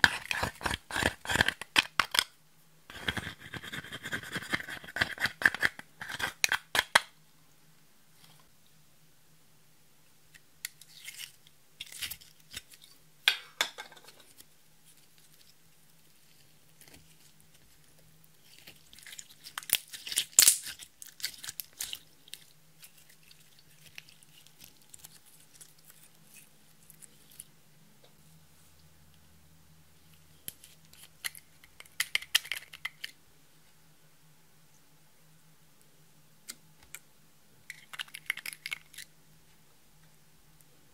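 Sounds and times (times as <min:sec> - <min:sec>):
faint low hum: 0:00.0 - 0:40.9
slime crackling and popping: 0:18.4 - 0:26.0.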